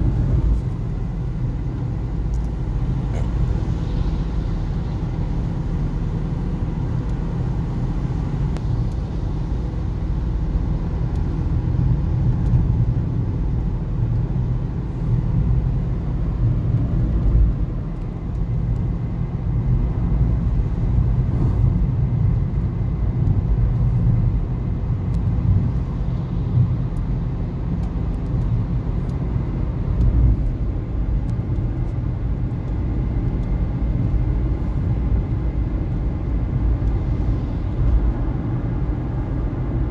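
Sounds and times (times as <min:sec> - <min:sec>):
car engine and tyres rumbling: 0:00.0 - 0:39.9.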